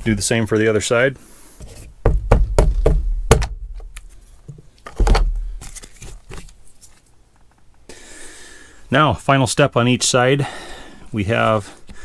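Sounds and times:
dull thump: 0:02.0 - 0:03.9
sharp knocks on plastic trim: 0:02.0 - 0:03.9.

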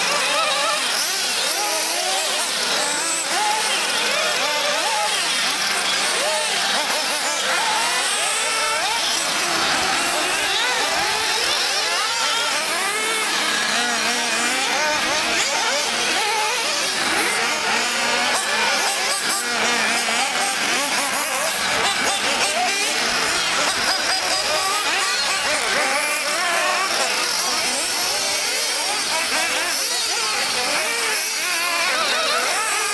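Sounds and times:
model car engines whining: 0:00.0 - 0:32.9.

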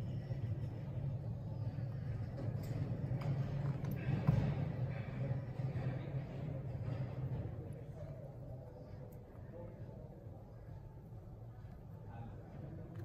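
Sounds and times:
machinery hum: 0:00.0 - 0:13.0.

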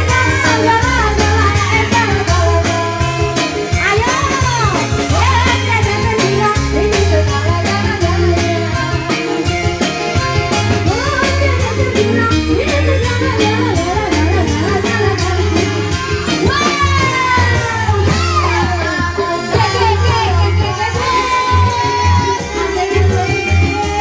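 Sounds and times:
woman singing: 0:00.0 - 0:09.8, 0:10.7 - 0:24.0
bass line: 0:00.0 - 0:24.0
keyboard: 0:00.0 - 0:24.0.

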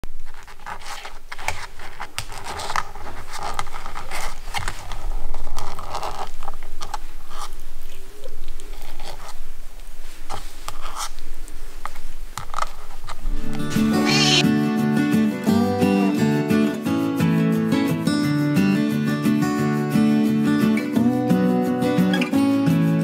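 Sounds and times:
kitten scratching plush toy: 0:00.2 - 0:07.6, 0:10.0 - 0:14.4.

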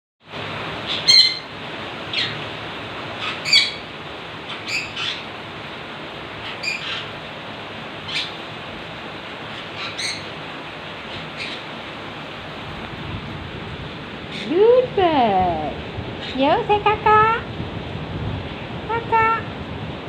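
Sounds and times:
parrots squawking: 0:00.8 - 0:02.5, 0:03.1 - 0:05.4, 0:06.3 - 0:07.2, 0:08.0 - 0:08.5, 0:09.4 - 0:10.4, 0:11.0 - 0:11.8, 0:14.3 - 0:14.6.

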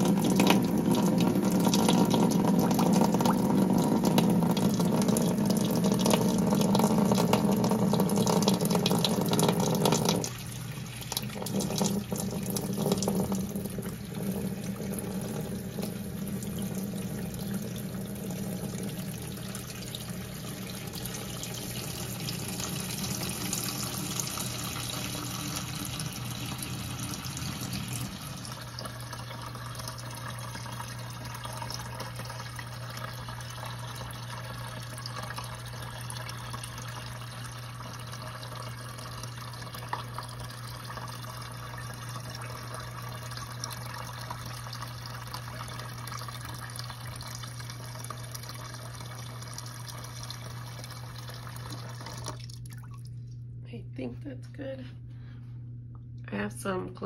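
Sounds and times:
steady low hum: 0:00.0 - 0:57.0
tap water splashing into plastic tub: 0:11.0 - 0:15.1.

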